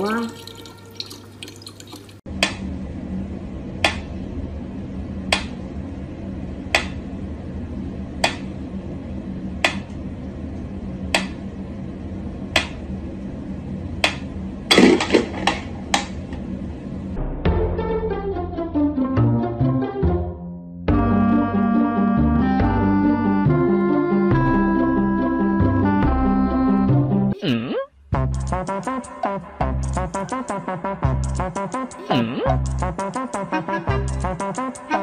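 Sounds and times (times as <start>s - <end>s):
steady low hum: 2.3s - 17.5s, 27.9s - 35.0s.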